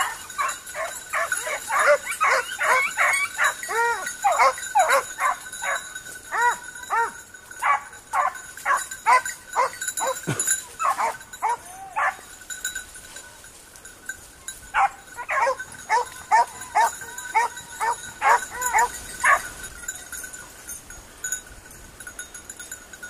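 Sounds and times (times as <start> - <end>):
hound baying: 0.0 - 12.3, 14.7 - 19.6.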